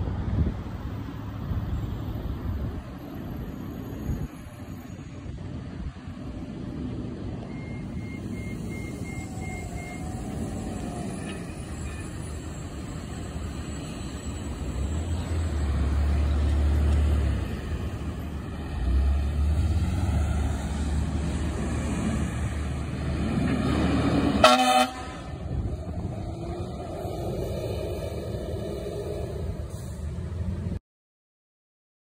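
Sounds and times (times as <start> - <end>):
fire engine diesel engine: 0.0 - 30.8
passing traffic rumble: 0.0 - 30.8
fire engine horn honk: 24.4 - 25.4.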